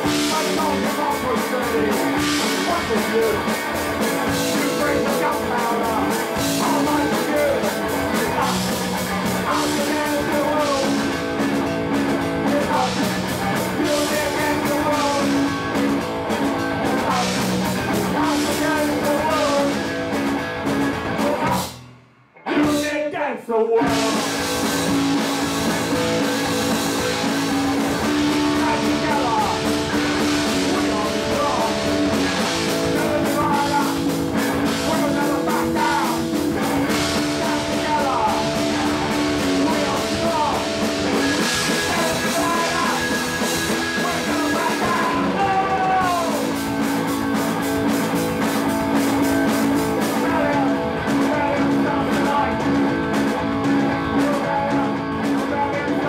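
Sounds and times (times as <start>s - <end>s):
punk rock band playing: 0.0s - 23.2s, 23.8s - 56.0s.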